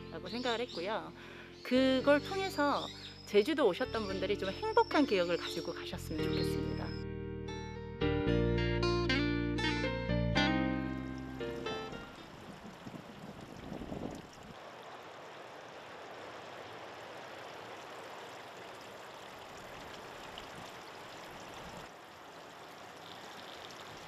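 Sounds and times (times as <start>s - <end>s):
water dripping from rock: 17.4s - 24.0s.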